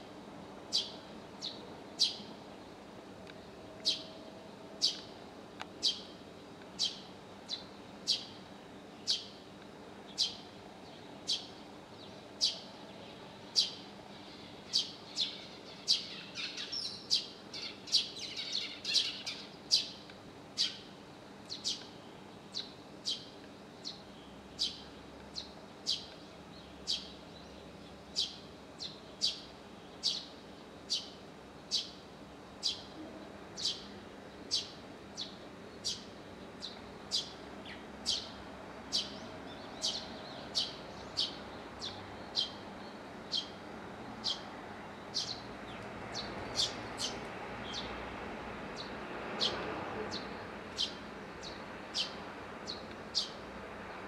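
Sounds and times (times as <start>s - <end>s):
sparrow chirping: 0.7s - 2.3s, 3.8s - 4.2s, 4.8s - 5.1s, 5.8s - 6.1s, 6.8s - 8.4s, 9.0s - 9.4s, 10.1s - 10.5s, 11.2s - 12.7s, 13.5s - 20.0s, 20.6s - 20.9s, 21.5s - 21.9s, 22.5s - 30.3s, 30.9s - 32.0s, 32.6s - 33.0s, 33.6s - 47.9s, 48.8s - 53.4s.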